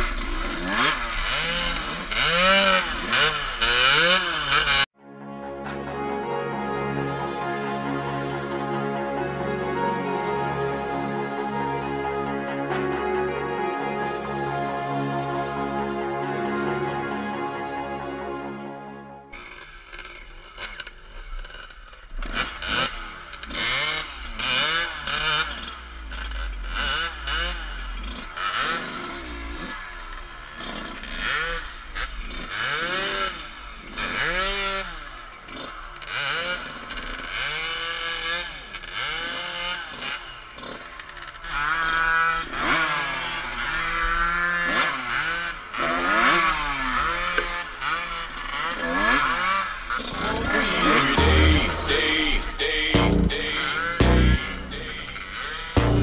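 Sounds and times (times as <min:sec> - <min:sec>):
dirt bike engine revving: 0:00.0 - 0:04.9, 0:19.3 - 0:56.0.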